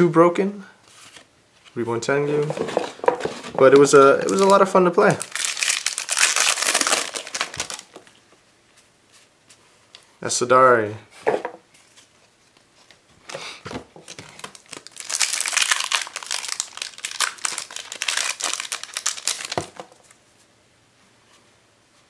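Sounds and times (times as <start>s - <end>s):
foil wrapper tearing and crinkling: 3.8s - 8.1s, 14.1s - 20.1s.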